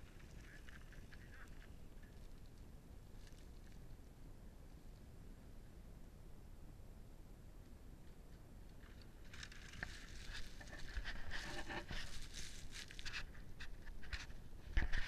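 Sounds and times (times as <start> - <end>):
bike rolling over leaves and stones: 8.8 - 13.4.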